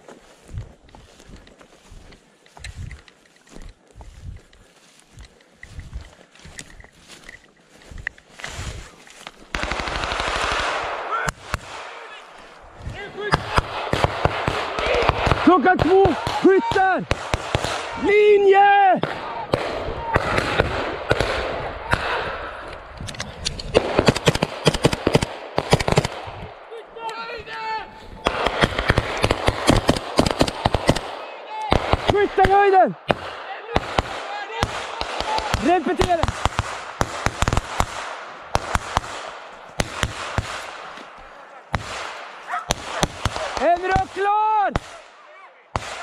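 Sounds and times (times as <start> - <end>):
rifle shots: 9.5 - 18.2, 19.0 - 22.7, 23.5 - 26.7, 28.2 - 46.0.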